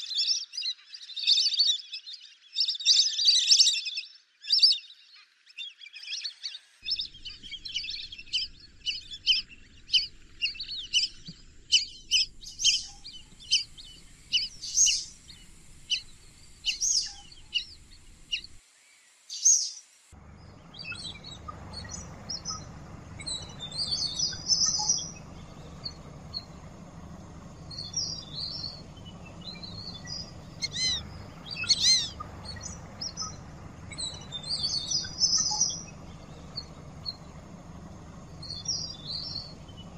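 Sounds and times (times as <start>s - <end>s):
ducks whistling: 6.8s - 18.6s, 20.2s - 39.9s
steady low background noise: 6.8s - 19.3s, 20.0s - 39.9s.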